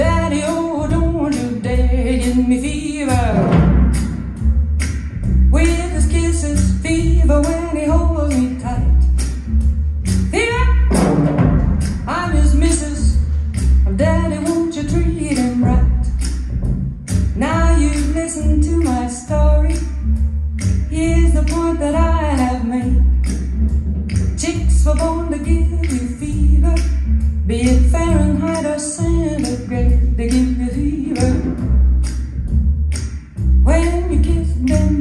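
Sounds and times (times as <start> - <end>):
woman singing: 0.0 - 3.6, 5.5 - 9.2, 10.3 - 11.0, 12.1 - 13.3, 13.9 - 16.2, 17.4 - 20.0, 20.8 - 23.3, 24.4 - 31.6, 33.6 - 35.0
deep pulsing bass line: 0.0 - 35.0.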